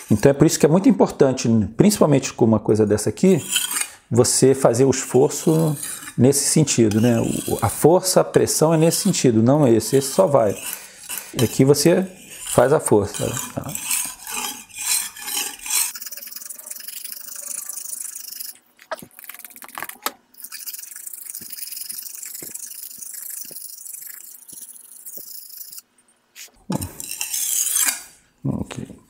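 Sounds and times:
knife scraping on brick: 0:03.3 - 0:04.0, 0:05.0 - 0:07.9, 0:08.6 - 0:19.0, 0:26.8 - 0:28.2.

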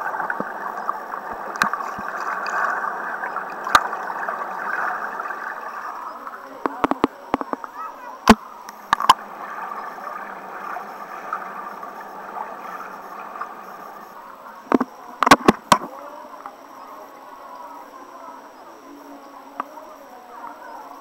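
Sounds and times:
muffled water sloshing: 0:00.0 - 0:16.0.

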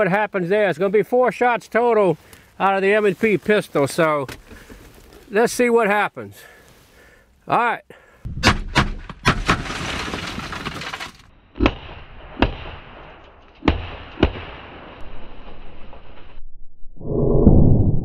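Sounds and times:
glass breaking: 0:08.5 - 0:11.2.

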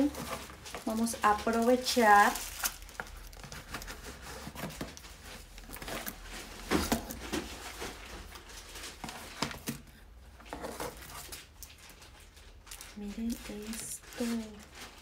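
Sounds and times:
cardboard box rustling and scraping: 0:03.3 - 0:11.3.

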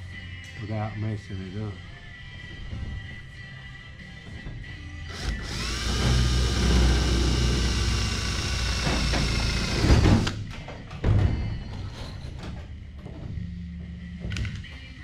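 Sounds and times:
cordless drill drilling: 0:05.1 - 0:10.4.

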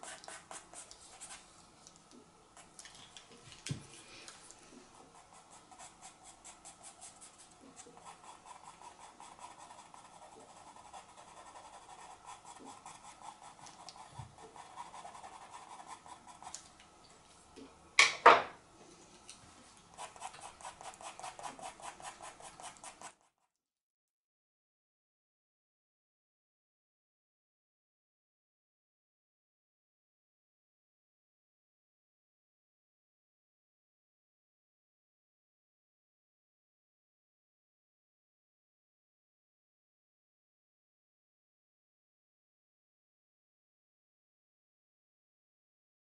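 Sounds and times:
pencil scratching on paper: 0:00.0 - 0:01.5, 0:05.0 - 0:16.6, 0:20.0 - 0:23.5.

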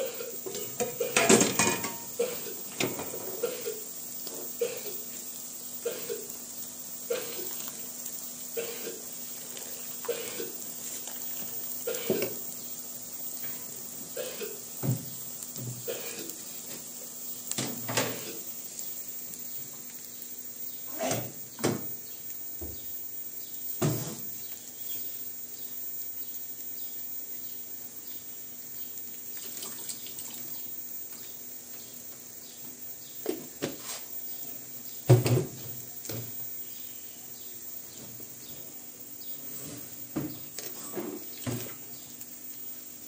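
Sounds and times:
steady hiss: 0:00.0 - 0:43.0
kitchen utensils knocking and clinking: 0:00.6 - 0:02.1.

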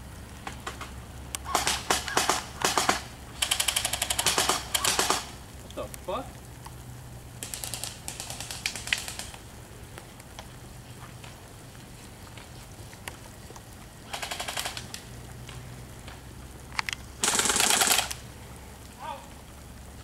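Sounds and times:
airsoft guns firing rapid bursts: 0:01.5 - 0:05.3, 0:07.4 - 0:09.4, 0:14.1 - 0:14.9, 0:17.2 - 0:18.2.

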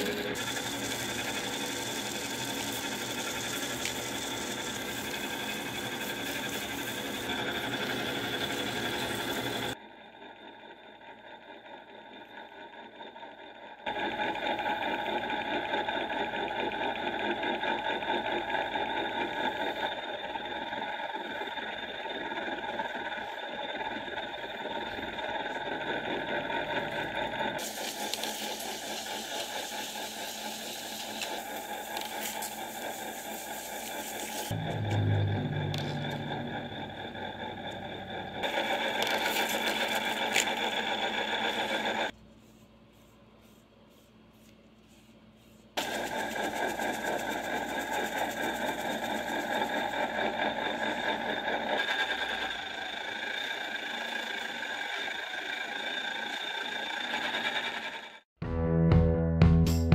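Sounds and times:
sandpaper hissing on wood: 0:00.0 - 0:09.4, 0:27.6 - 0:34.5, 0:41.4 - 0:50.0
lathe motor hum: 0:00.0 - 0:42.2, 0:45.8 - 0:58.3.

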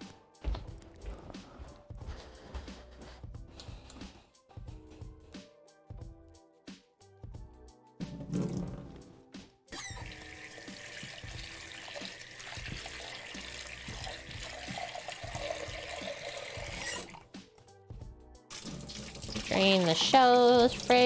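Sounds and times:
music: 0:00.0 - 0:21.0
tap running into sink: 0:08.0 - 0:09.1, 0:09.9 - 0:17.1.

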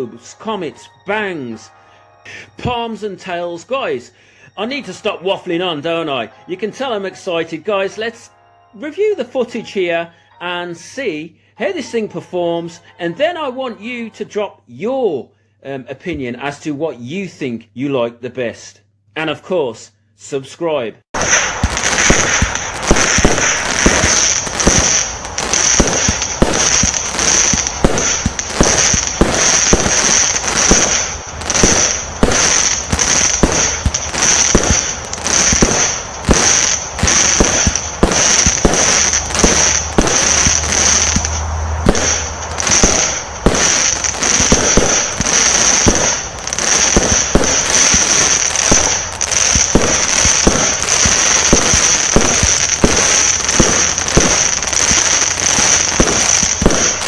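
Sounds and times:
firework cake shots and bursts: 0:21.2 - 0:57.0.

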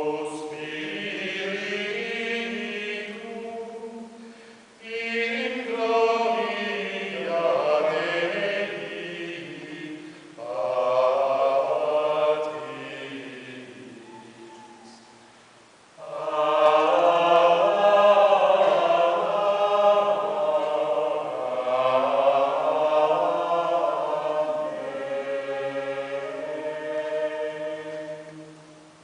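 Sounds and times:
choir singing chant: 0:00.0 - 0:15.3, 0:16.0 - 0:29.0.

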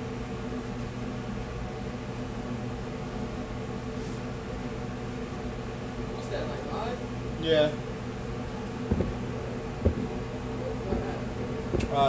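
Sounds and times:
fan whir: 0:00.0 - 0:12.0
kitchen equipment hum: 0:07.2 - 0:12.0
low buzzing tone: 0:07.8 - 0:12.0.

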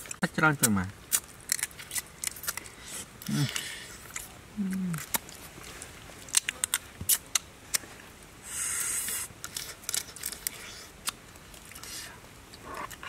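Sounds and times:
crab shell cracking and crunching: 0:00.0 - 0:05.5, 0:06.2 - 0:07.8, 0:09.4 - 0:12.0.

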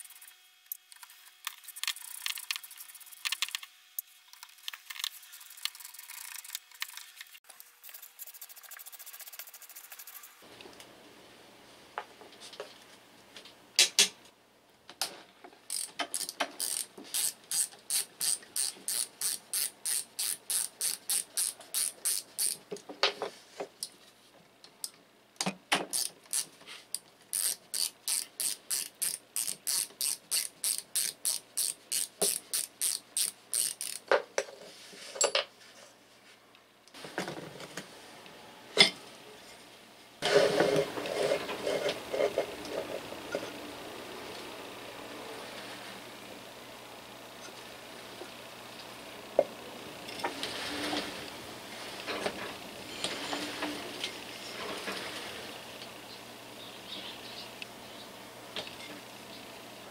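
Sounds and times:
ratchet screwdriver clicking: 0:15.7 - 0:22.6, 0:25.9 - 0:26.5, 0:27.3 - 0:34.0
rough scraping: 0:40.2 - 0:43.0.

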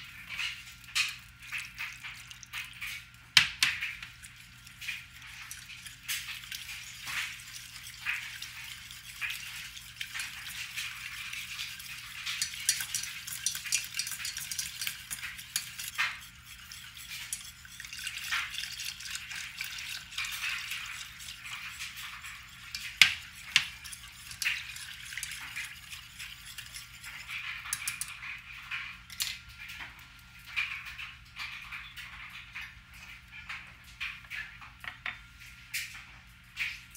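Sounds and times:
wire whisk clinking in saucepan: 0:04.3 - 0:28.2.

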